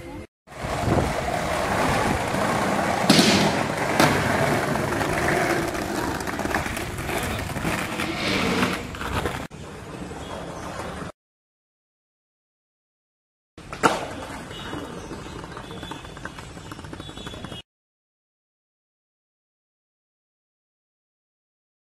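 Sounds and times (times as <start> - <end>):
skateboard wheels rolling on paving: 0.5 - 11.1, 13.6 - 17.6
skateboard clack: 0.6 - 9.5, 13.6 - 17.6.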